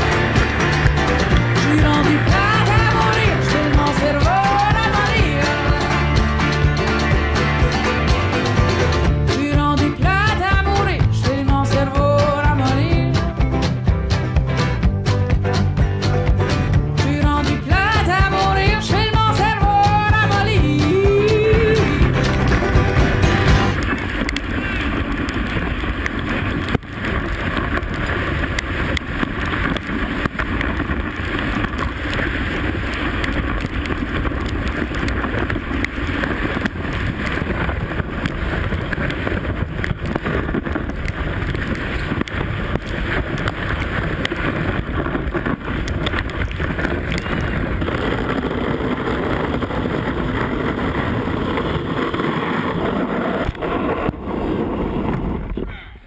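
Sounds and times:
sled runners sliding over snow: 0.0 - 15.0, 15.6 - 56.0
wind on microphone: 17.1 - 55.8.

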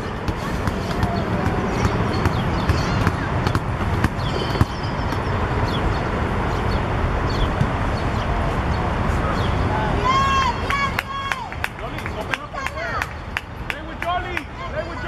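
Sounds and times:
distant children's voices: 0.0 - 3.6.

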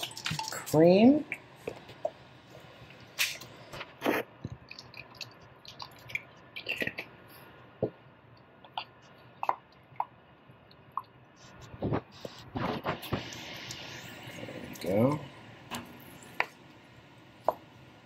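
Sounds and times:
soup bubbling with wet plops: 4.4 - 7.2.

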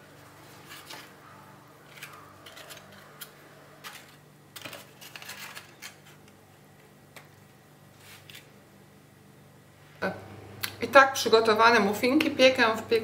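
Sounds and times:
paper muffin cases rustling: 1.8 - 6.3.

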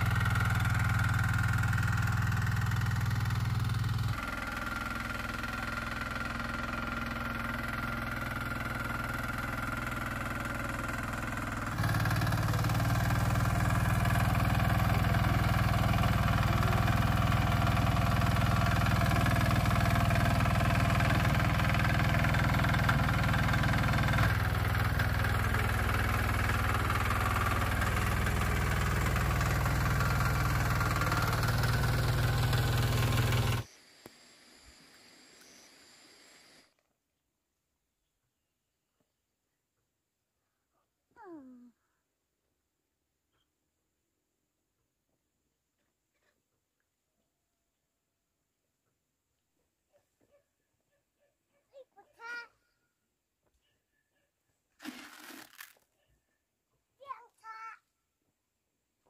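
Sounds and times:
tractor engine running: 0.0 - 33.7.

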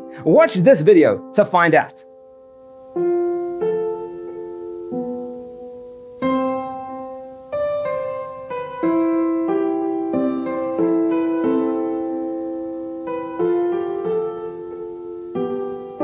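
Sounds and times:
slow piano chords: 0.0 - 16.0.

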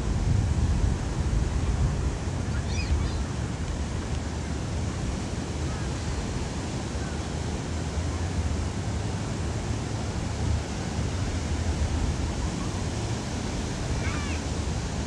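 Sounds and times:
wind rumbling on microphone: 0.0 - 15.0
surf breaking on beach: 8.9 - 15.0.

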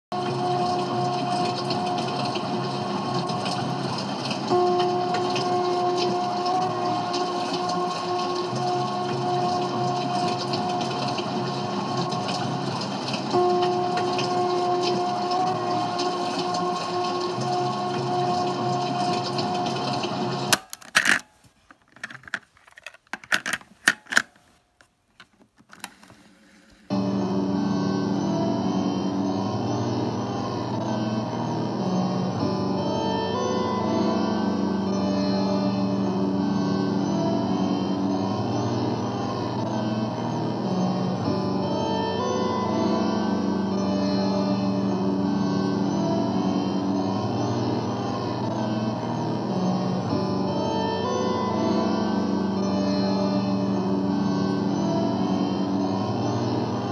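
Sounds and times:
cassette playback: 0.2 - 56.9
tape noise with faint crackle: 1.0 - 27.4
plastic cassette clicks and clacks: 20.5 - 26.8
droning tape note: 26.9 - 56.9.

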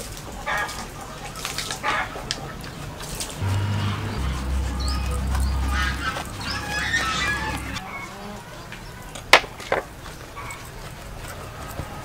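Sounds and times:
bird calls: 3.4 - 8.3.

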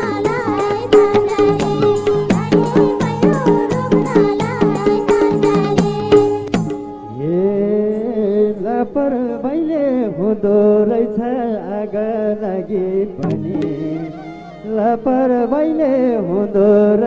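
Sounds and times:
instrumental accompaniment: 0.0 - 7.5, 13.2 - 15.5.

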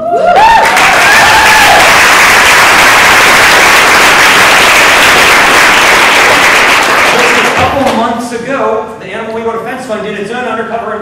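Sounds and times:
voices whooping and cheering: 0.0 - 2.2
audience applauding: 0.4 - 8.1.

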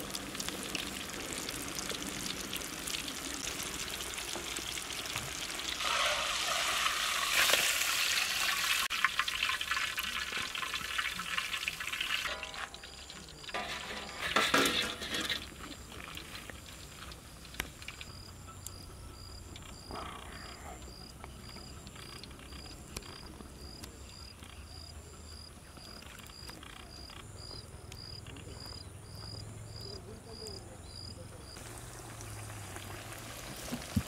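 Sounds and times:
insect chirping: 5.8 - 31.6
food clattering onto metal tray: 12.2 - 16.4.

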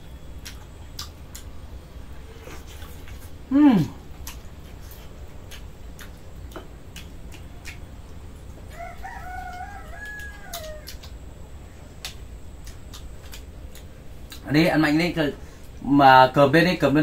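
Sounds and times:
rooster crowing: 8.7 - 11.1.

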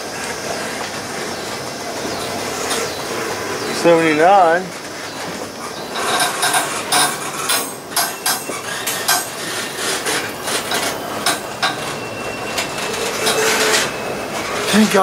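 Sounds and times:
rumble of wheels on rail: 0.0 - 15.0
sharp metallic clanks and bangs: 5.8 - 15.0.

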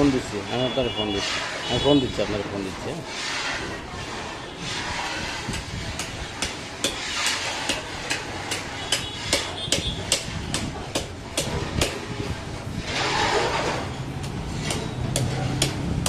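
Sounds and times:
knife chopping meat and bone: 7.7 - 12.0, 14.2 - 16.0.

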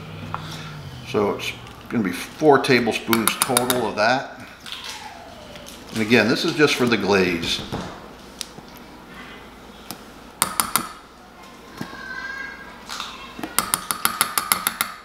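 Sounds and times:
spoon tapping glass cup: 3.1 - 3.8, 10.4 - 11.0, 13.6 - 15.0.

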